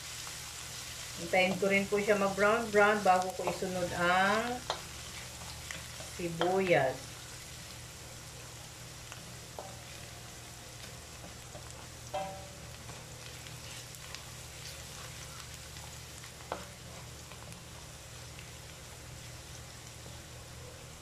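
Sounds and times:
garlic sizzling in oil: 0.0 - 21.0
spatula clinking against pan: 12.1 - 12.5.

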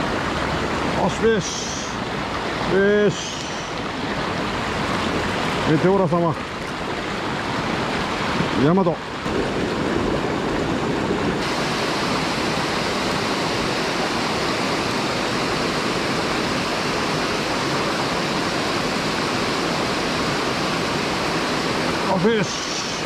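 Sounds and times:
stream water rushing: 0.0 - 23.0.

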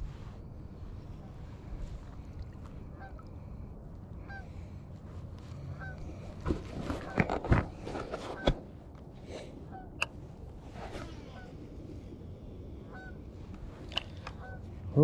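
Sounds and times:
low wind rumble: 0.0 - 15.0
geese honking: 5.7 - 6.1, 12.9 - 13.2, 14.2 - 14.8.

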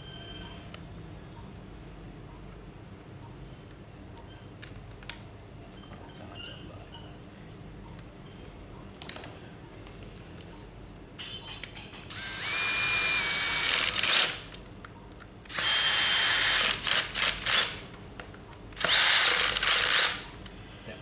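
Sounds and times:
cordless drill motor whine: 12.1 - 14.4, 15.5 - 17.8, 18.8 - 20.3
drill trigger bursts: 12.1 - 14.5, 15.5 - 17.8, 18.8 - 20.3.

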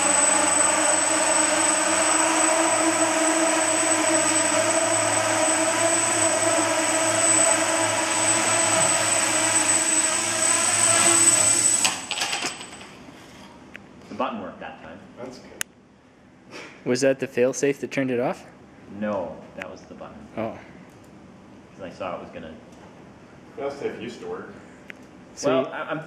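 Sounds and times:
quadcopter motors whining: 0.0 - 12.9.

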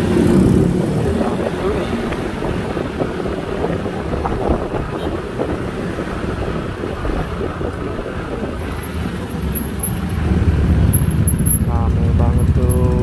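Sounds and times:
wind noise on microphone: 0.0 - 11.7
motor scooter engine running: 8.7 - 13.0.

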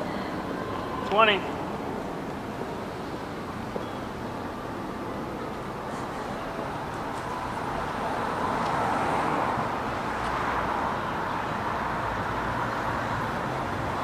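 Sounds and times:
traffic hum: 0.0 - 14.0
car driving past: 6.9 - 14.0.

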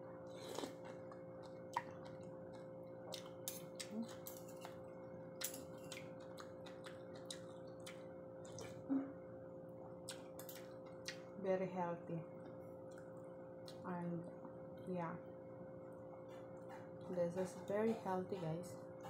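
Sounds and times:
steady low hum: 0.0 - 19.0
chewing: 0.3 - 8.9.

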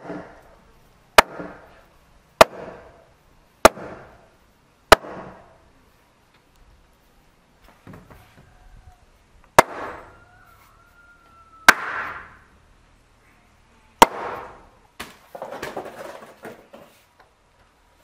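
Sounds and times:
wooden mallet striking timber: 0.0 - 0.4, 1.2 - 1.7, 2.4 - 3.0, 3.6 - 4.1, 4.9 - 5.4, 9.6 - 10.1, 11.7 - 12.4, 14.0 - 15.7.

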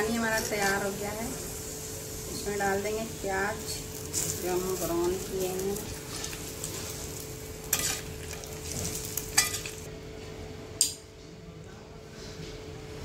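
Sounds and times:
faint sizzling hiss: 0.0 - 9.9
metal spoon scraping a pot: 7.7 - 9.8.

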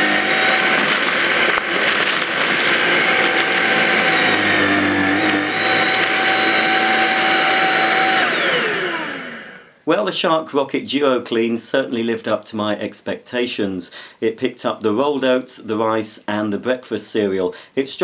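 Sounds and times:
cereal pieces clattering: 0.0 - 6.8
vacuum cleaner motor whine: 0.0 - 9.8.

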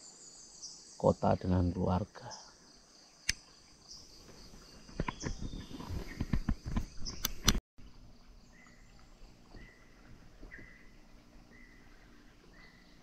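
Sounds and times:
high insect drone: 0.0 - 5.8.

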